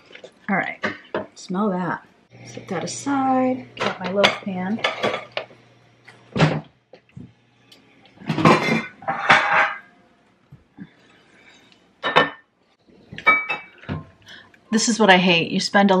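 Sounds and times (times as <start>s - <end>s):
pans scraping and clattering: 3.8s - 5.6s, 8.2s - 9.9s.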